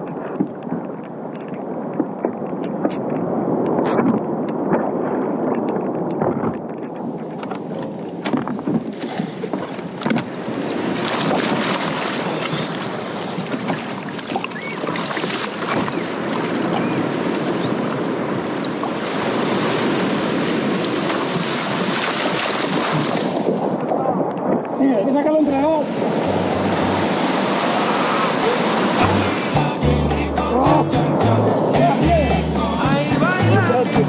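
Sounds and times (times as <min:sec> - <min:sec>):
wind buffeting microphone: 0:00.0 - 0:29.8
sea water sloshing around hull: 0:04.0 - 0:24.6.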